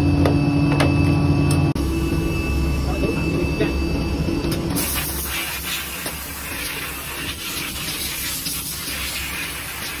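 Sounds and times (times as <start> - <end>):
hiss of air: 4.8 - 10.0.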